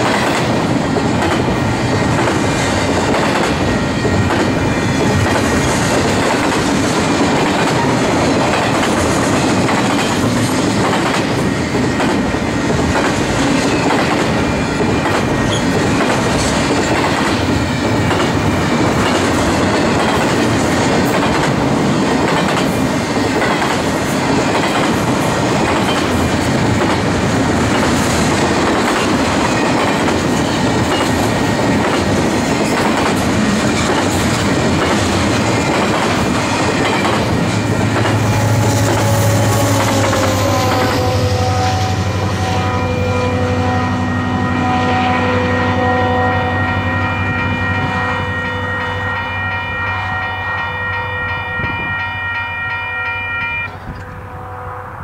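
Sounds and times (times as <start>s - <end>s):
wheels clacking over rail joints: 0.0s - 41.0s
train wheels rumbling on rails: 0.0s - 52.8s.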